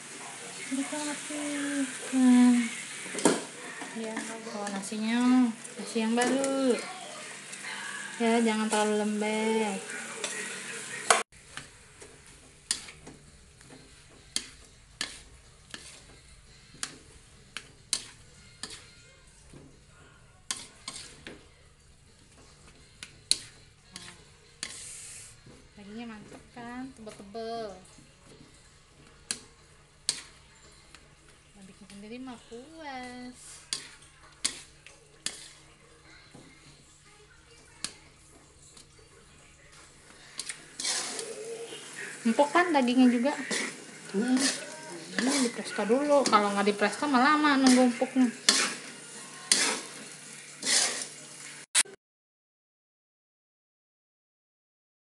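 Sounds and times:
metal spatula scraping a wok: 2.7 - 6.8, 7.5 - 19.1, 20.4 - 21.4, 22.1 - 26.0, 29.3 - 31.0, 33.1 - 36.7, 39.9 - 51.6
spatula clacking against wok: 12.6 - 18.9, 22.7 - 24.8, 33.7 - 35.6, 43.4 - 50.0.

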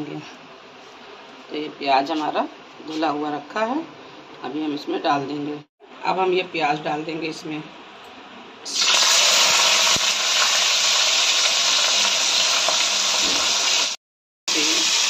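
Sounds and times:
onions sizzling in hot oil: 8.7 - 15.0.

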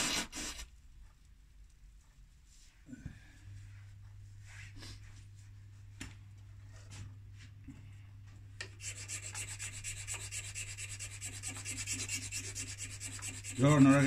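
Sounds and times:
hand file rasping: 0.0 - 0.6, 8.8 - 14.0
steady low hum: 0.6 - 14.0.

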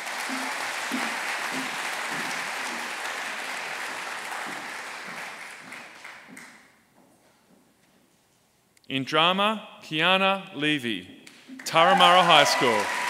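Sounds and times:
audience applauding: 0.0 - 6.7, 11.6 - 13.0.

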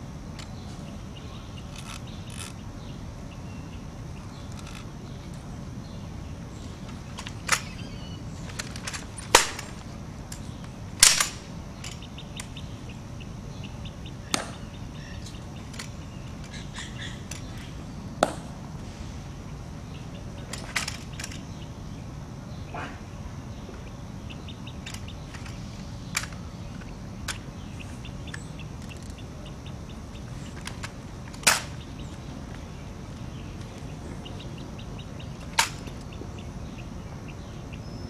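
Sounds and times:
rifle sharp cracks: 9.3 - 9.9, 11.0 - 12.5, 14.3 - 14.6, 31.4 - 31.8.

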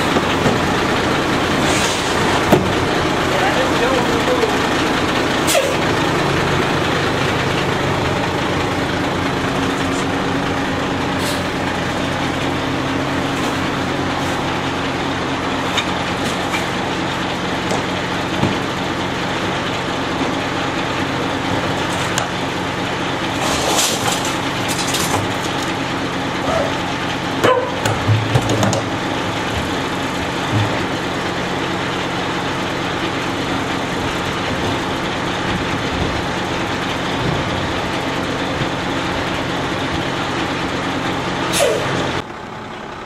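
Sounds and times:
trash cans clanking against hopper: 0.0 - 4.4, 11.2 - 31.9
garbage truck engine idling: 0.0 - 43.0.

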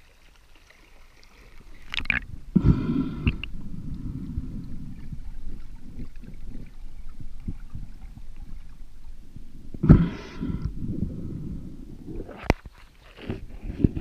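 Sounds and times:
muffled underwater water rumble: 1.0 - 14.0.

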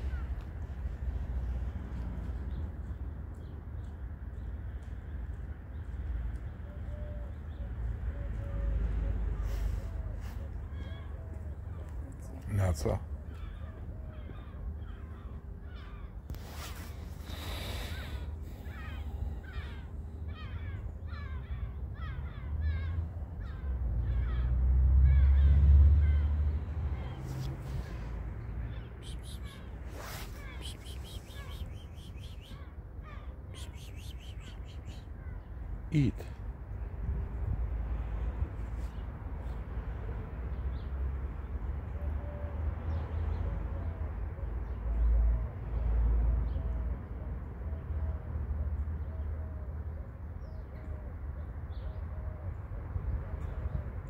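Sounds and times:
low outdoor rumble: 0.0 - 40.4
crow cawing: 17.3 - 26.3.

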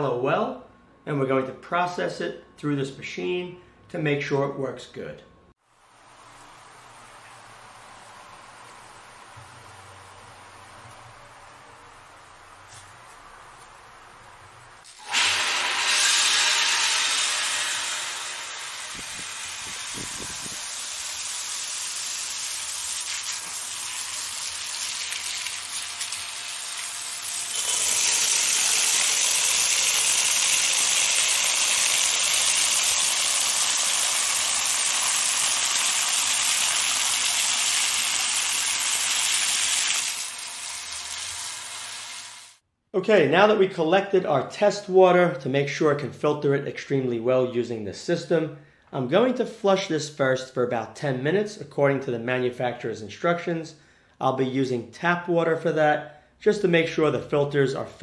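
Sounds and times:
water gushing into a steel pot: 27.2 - 40.4.

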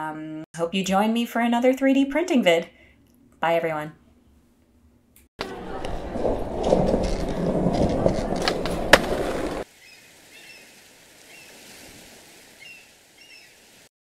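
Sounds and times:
skateboard clacks: 5.4 - 9.6
skateboard wheels rolling: 5.4 - 9.7.

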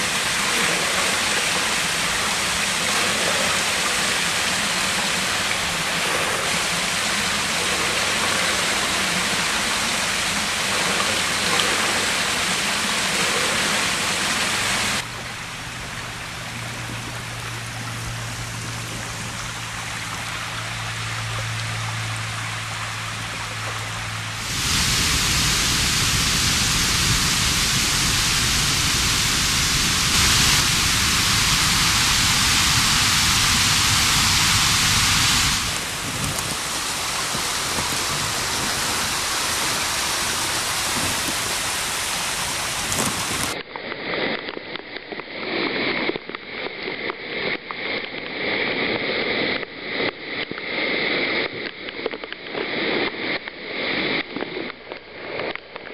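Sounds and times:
water rushing in stream: 0.0 - 43.6
low steady hum: 0.0 - 43.7.

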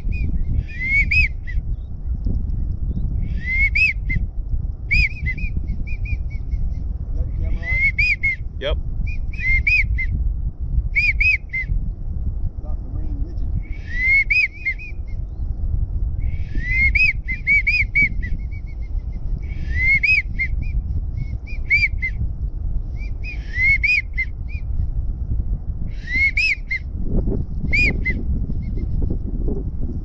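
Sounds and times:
wigeon whistling: 0.0 - 1.6, 3.2 - 4.3, 4.9 - 6.8, 7.6 - 10.2, 10.9 - 11.8, 13.6 - 15.2, 16.2 - 22.2, 23.0 - 24.9, 26.0 - 26.9, 27.6 - 28.9
wind rumble on microphone: 0.0 - 30.0.

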